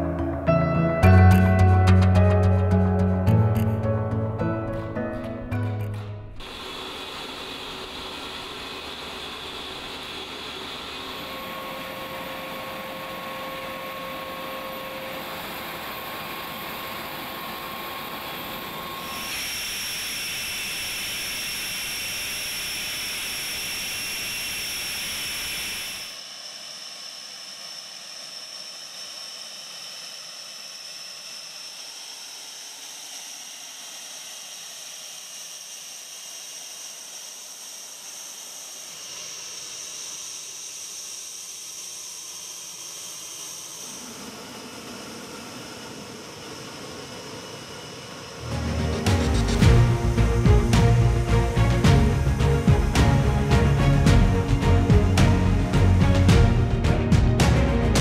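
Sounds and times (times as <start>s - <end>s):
jet engine hiss and whine: 6.4s - 56.4s.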